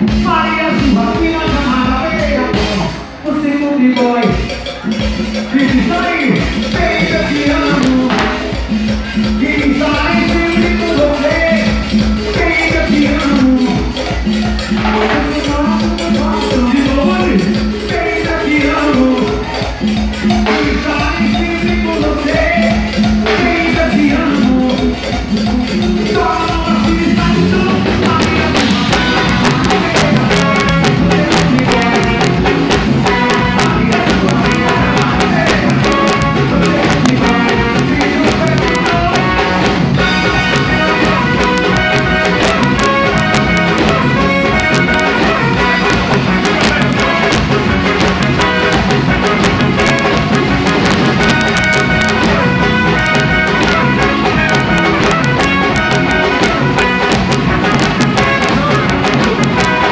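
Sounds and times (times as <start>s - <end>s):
drum kit: 0.0s - 59.9s
electric guitar: 0.0s - 59.9s
keyboard: 0.0s - 59.9s.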